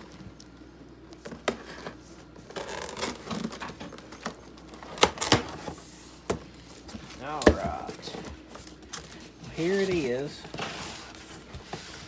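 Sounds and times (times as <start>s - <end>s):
packing tape tearing: 1.5s - 5.7s
cardboard flaps knocking and crackling: 7.2s - 8.4s.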